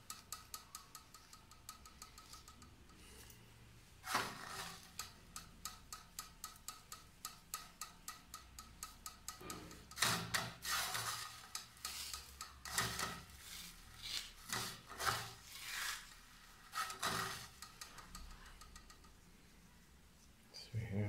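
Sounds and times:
scraping in frying pan: 0:04.0 - 0:05.0, 0:09.7 - 0:18.2.

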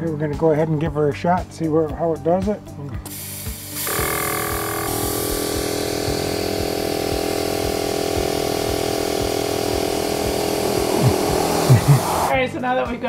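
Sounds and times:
air compressor running: 0:03.1 - 0:12.3.

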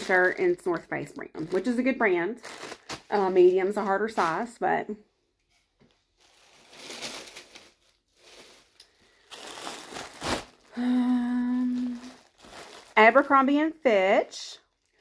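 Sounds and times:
plastic bag crinkling: 0:00.0 - 0:04.6, 0:05.5 - 0:13.8, 0:14.6 - 0:15.0
woman humming: 0:10.7 - 0:12.2.

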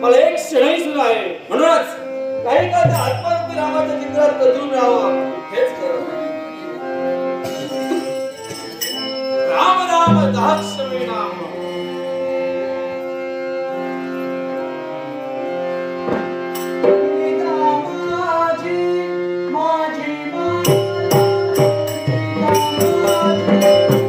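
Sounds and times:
harmonium chords: 0:00.0 - 0:24.0
person singing: 0:16.8 - 0:24.0.

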